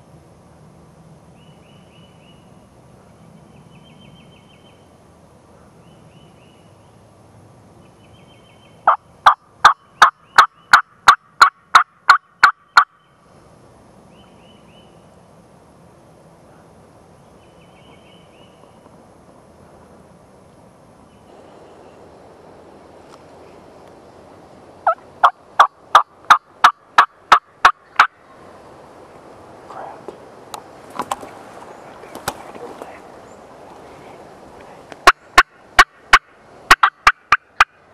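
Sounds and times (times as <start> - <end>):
turkey call yelps: 35.0 - 37.8.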